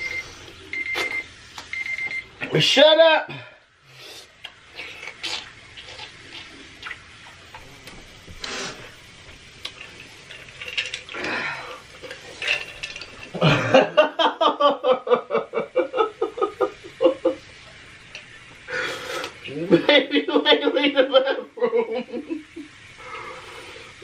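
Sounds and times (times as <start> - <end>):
breathy vocal sounds: 11.1 - 12.0.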